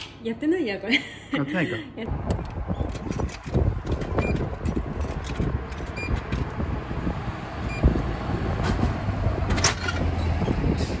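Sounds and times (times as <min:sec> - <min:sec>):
low rumble of traffic: 0:00.0 - 0:11.0
vending machine beeps and clicks: 0:04.0 - 0:04.6, 0:05.8 - 0:06.4, 0:07.6 - 0:07.9.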